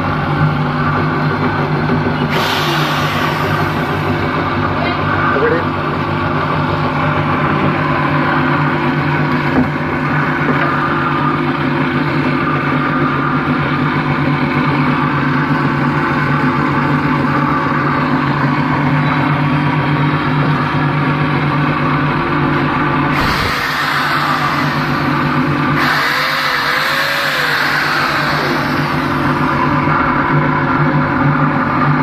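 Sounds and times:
electric motor machinery humming: 0.0s - 32.0s
electric drill spinning: 23.1s - 30.0s.

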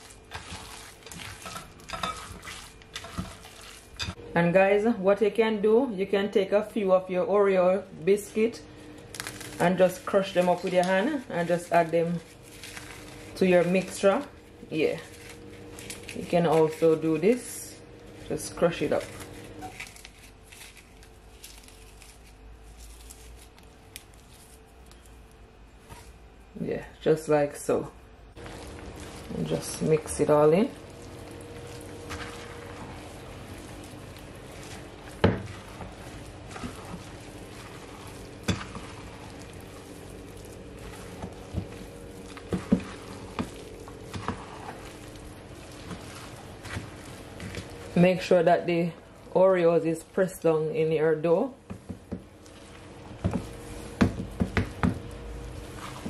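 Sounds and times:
biscuits crunching by hand: 0.0s - 4.0s, 9.0s - 9.8s, 11.9s - 16.9s, 19.0s - 25.5s, 28.4s - 29.9s, 30.6s - 48.0s
spoon stirring stiff dough: 0.0s - 4.2s, 8.1s - 25.2s, 28.4s - 50.8s, 51.6s - 56.0s.

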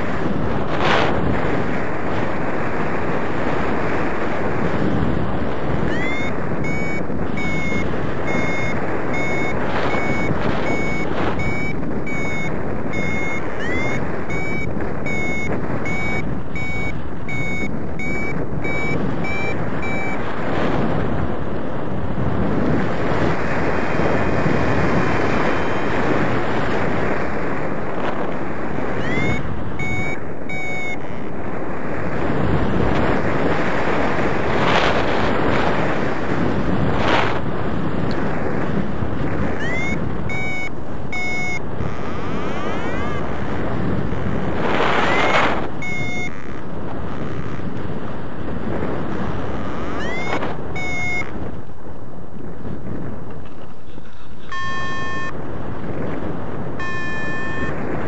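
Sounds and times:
wind rushing over microphone: 0.0s - 58.0s
short high beeps: 5.8s - 20.2s, 29.0s - 31.3s, 39.6s - 43.4s, 45.0s - 47.7s, 49.2s - 51.4s, 54.4s - 55.4s, 56.8s - 57.8s.

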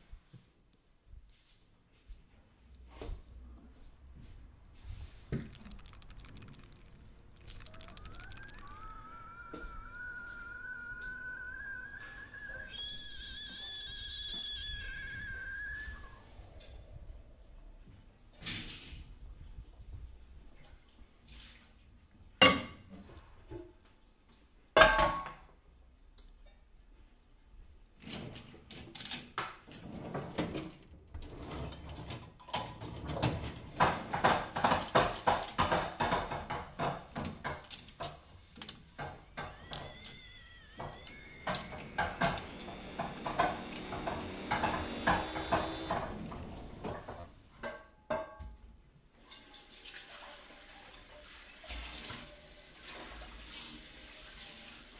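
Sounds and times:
swooping tone: 5.7s - 17.9s.

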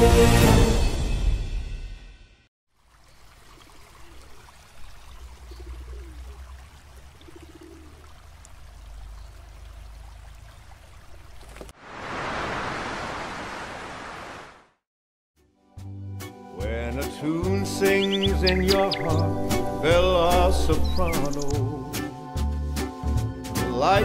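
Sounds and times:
soft water ambience: 2.7s - 14.8s
ocean surf breaking on rocks: 11.8s - 14.7s.

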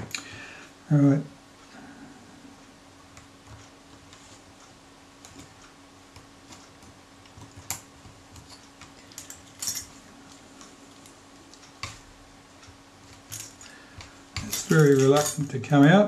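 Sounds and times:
metal clinks: 8.5s - 10.0s, 14.4s - 15.6s.

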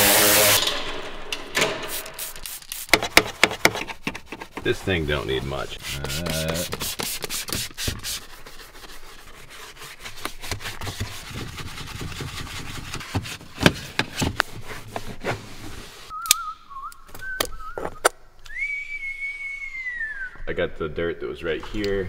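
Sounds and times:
brush scrubbing rubber floor mat: 2.2s - 14.3s
person whistling a wavering tune: 16.1s - 20.4s.

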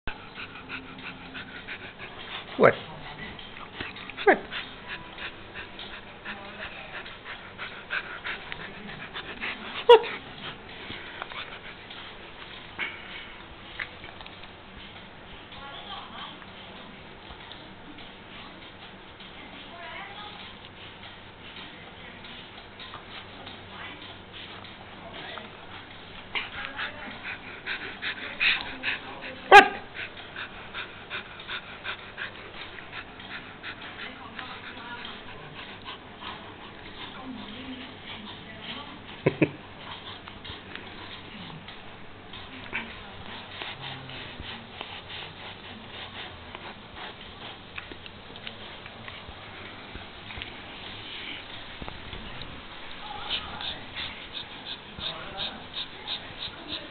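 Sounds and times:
puppy breathing: 0.1s - 15.1s, 22.5s - 56.9s
puppy whining: 8.6s - 10.3s
small clicking noises: 10.3s - 29.0s, 46.0s - 50.6s.

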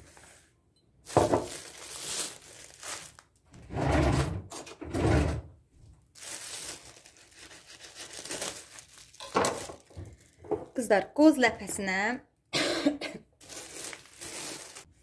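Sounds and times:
plastic bag rustling and crinkling: 1.0s - 3.7s, 6.0s - 10.6s, 13.4s - 15.0s.

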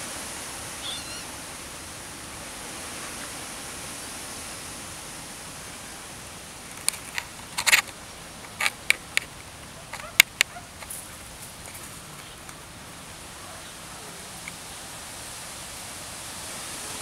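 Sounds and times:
steady outdoor hiss: 0.0s - 17.0s
dry leaves crackling: 6.6s - 14.8s.

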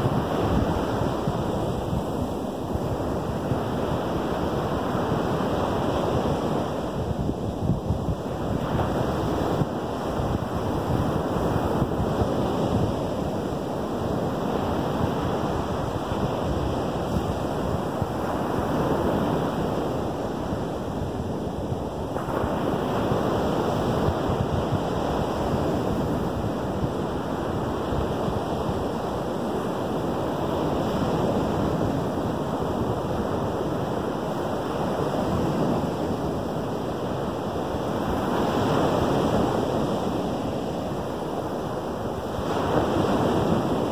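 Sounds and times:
wind rumble on microphone: 0.0s - 43.9s
surf breaking on beach: 22.0s - 43.9s.

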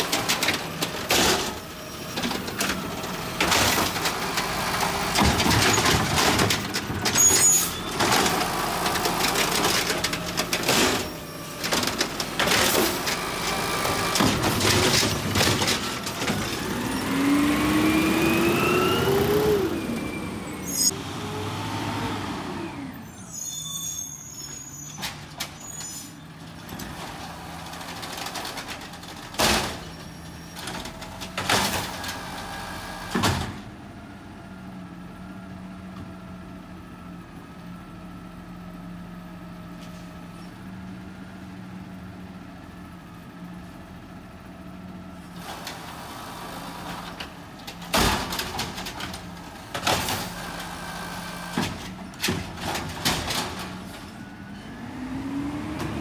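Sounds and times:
bangs and knocks of cart: 0.0s - 1.6s, 5.0s - 13.2s, 13.8s - 17.0s, 47.2s - 50.8s, 51.4s - 54.1s
diesel engine running: 0.0s - 23.2s, 30.1s - 56.0s.

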